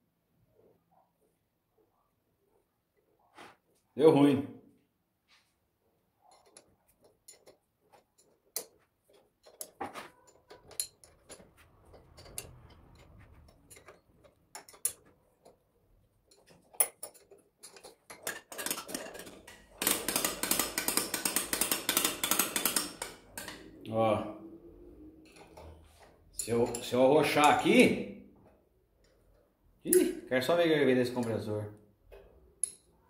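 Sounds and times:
metal parts clinking: 6.2 - 23.8, 25.2 - 27.8, 32.5 - 33.0
fast metallic clicking: 16.3 - 23.7.

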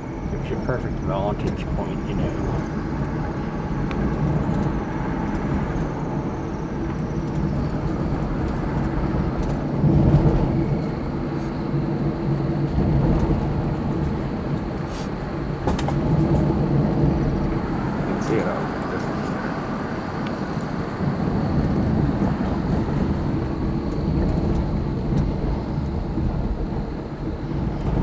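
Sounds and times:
car engine and tyres rumbling: 0.0 - 28.0.

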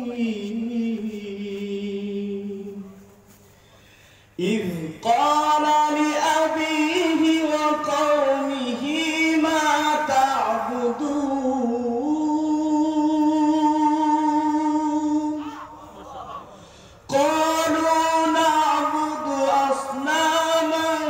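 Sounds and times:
man reciting melodically: 0.0 - 21.0.

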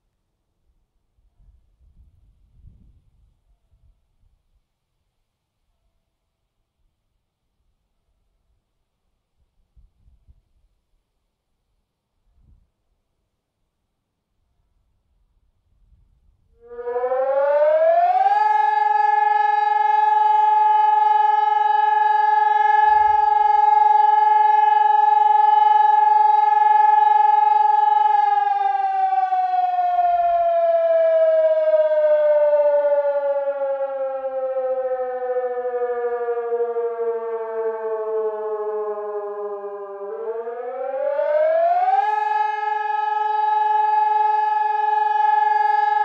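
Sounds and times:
electronic siren wailing: 16.6 - 46.0.

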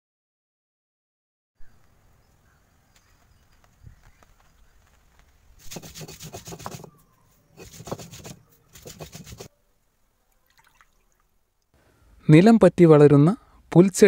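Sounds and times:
stone roller grinding on stone: 5.6 - 7.0, 7.6 - 9.5.

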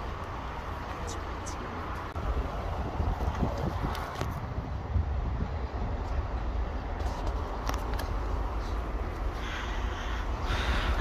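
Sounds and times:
wind buffeting microphone: 2.1 - 9.3.

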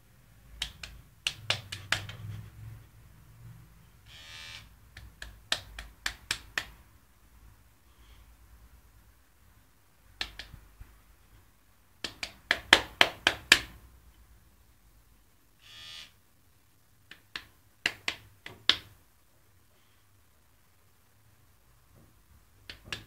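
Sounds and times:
electric shaver buzz: 4.1 - 4.6, 15.6 - 16.1
hard plastic clicks and taps: 22.6 - 23.0.

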